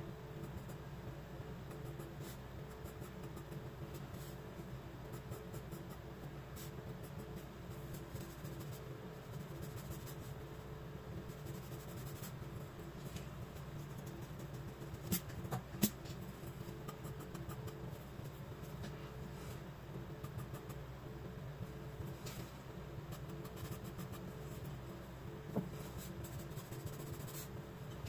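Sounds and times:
steady low hum: 0.0 - 28.0
pencil scratching on paper: 11.3 - 12.4, 23.1 - 24.3, 25.8 - 27.5.

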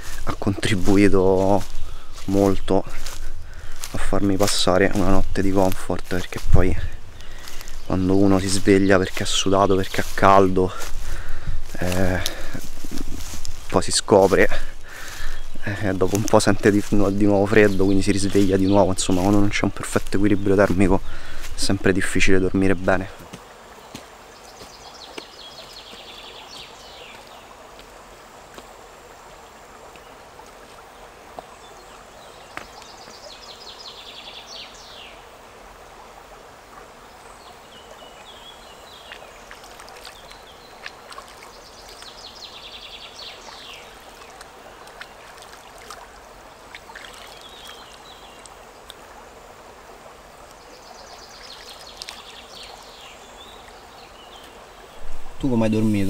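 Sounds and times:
river water running over stones: 0.0 - 56.0
small sharp clicks and splashes: 39.0 - 42.3, 43.2 - 49.0, 50.4 - 52.7.

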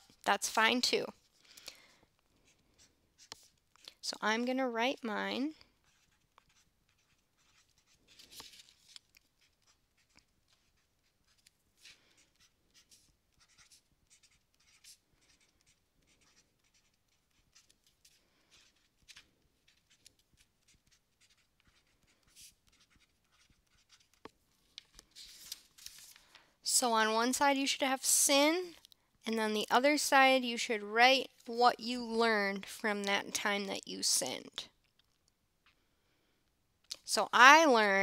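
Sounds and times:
pen writing on paper: 5.8 - 24.2.

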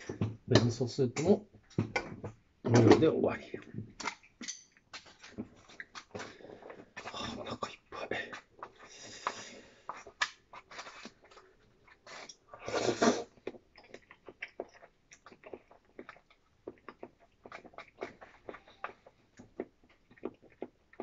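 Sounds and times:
loud slurp: 12.1 - 13.4
wet mouth smacks and chewing: 13.3 - 21.0.

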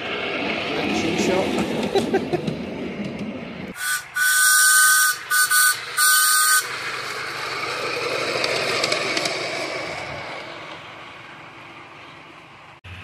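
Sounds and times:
miniature locomotive running past: 0.0 - 13.0
two-tone steam whistle: 3.8 - 6.8.

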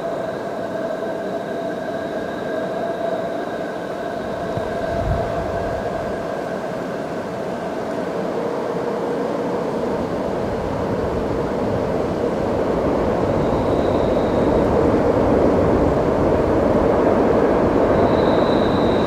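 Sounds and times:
freight train running: 0.0 - 19.0
faint high wheel squeal: 13.2 - 15.0, 17.8 - 19.0.

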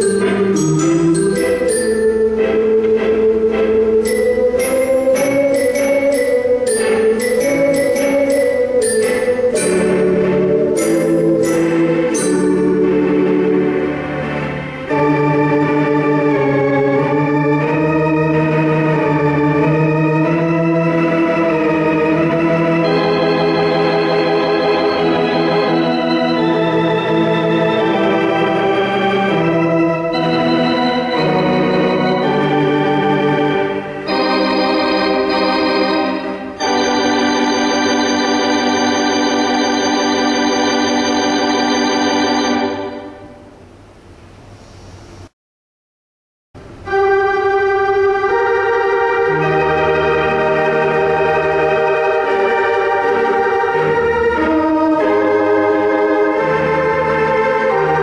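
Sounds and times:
theatre organ melody: 0.0 - 44.0, 46.6 - 58.0.

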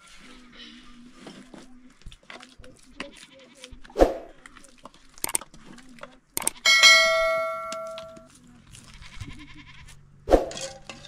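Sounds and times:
mouse click: 5.2 - 5.4, 6.4 - 6.6
bright bell ding: 6.6 - 8.3.

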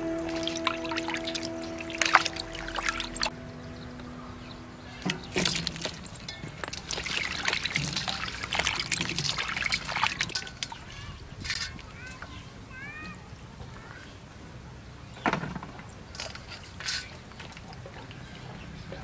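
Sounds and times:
water trickling: 0.0 - 11.1
water sloshing in metal basin: 5.0 - 11.8.

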